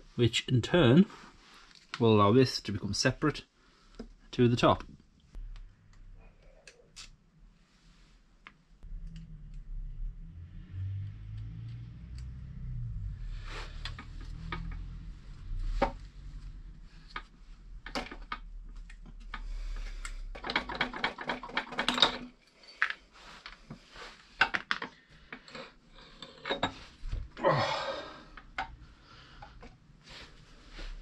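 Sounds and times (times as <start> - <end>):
metal scrape: 13.2 - 17.2.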